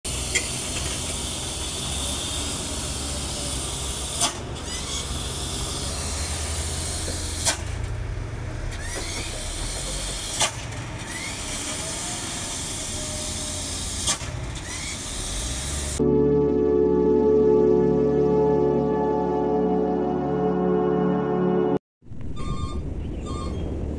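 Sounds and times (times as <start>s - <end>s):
diesel engine running low: 0.1s - 19.2s, 22.0s - 23.9s
short rising squeak: 4.2s - 7.8s, 22.3s - 23.8s
ambient music: 16.0s - 21.8s.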